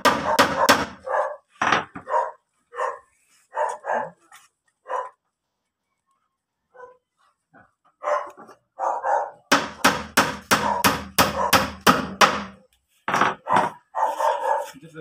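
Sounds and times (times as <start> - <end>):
hammer striking wooden panel: 0.0 - 1.0, 9.5 - 12.6.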